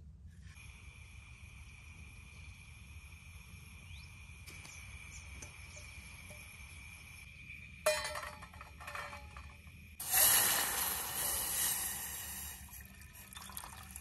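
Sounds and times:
water splashing into metal pot: 10.0 - 14.0.

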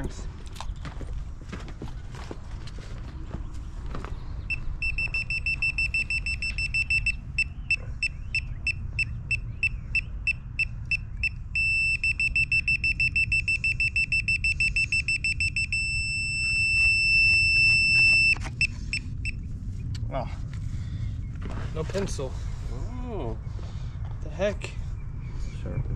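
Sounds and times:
high-pitched electronic beeping: 4.5 - 19.4.

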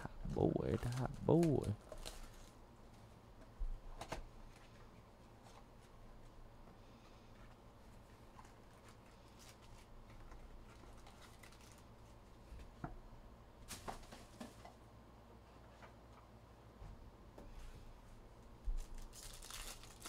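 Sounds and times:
cardboard and foil rustling: 0.2 - 2.6, 7.5 - 12.5, 13.6 - 14.8, 18.7 - 20.0.

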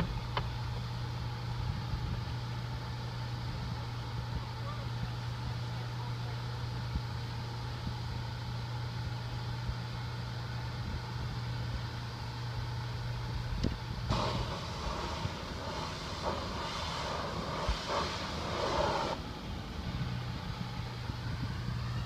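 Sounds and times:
pressure washer engine humming: 0.0 - 22.0
water spray hissing on metal roof: 14.1 - 19.2.

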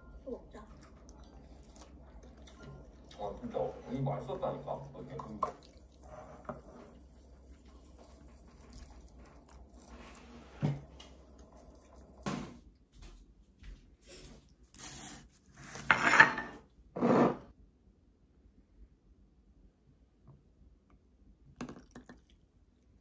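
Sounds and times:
dishes and packaging handled: 14.8 - 16.6.

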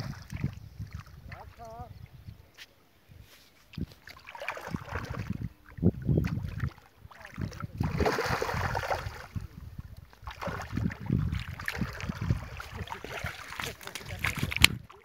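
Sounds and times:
wind rumble on microphone: 0.0 - 2.5, 3.1 - 15.0
fish splashing in water: 4.0 - 5.5, 6.2 - 9.4, 10.2 - 15.0.

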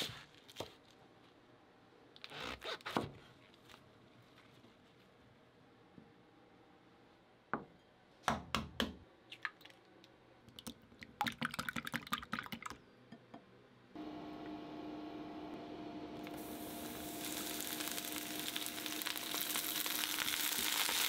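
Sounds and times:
cooktop electrical hum: 3.1 - 21.0.

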